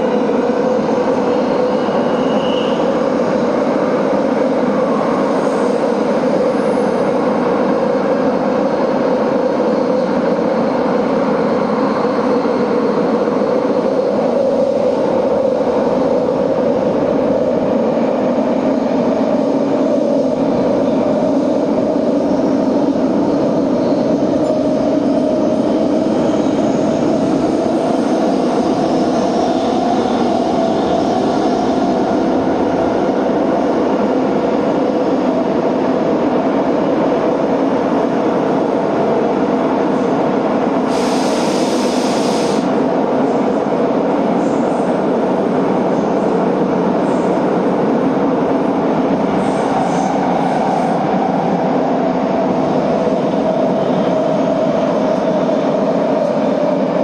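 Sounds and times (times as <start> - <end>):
subway train rumbling: 0.0 - 57.0
high hiss: 40.9 - 42.7.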